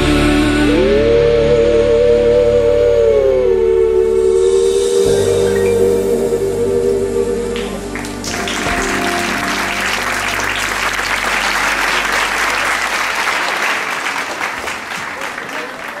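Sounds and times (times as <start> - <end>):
held music notes: 4.8 - 13.7
audience applauding: 7.6 - 16.0.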